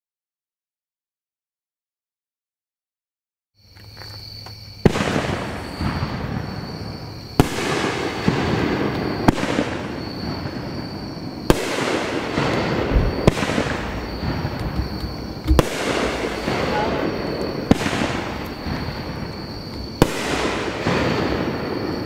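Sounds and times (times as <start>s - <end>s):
fireworks cake bangs: 4.8s - 22.0s.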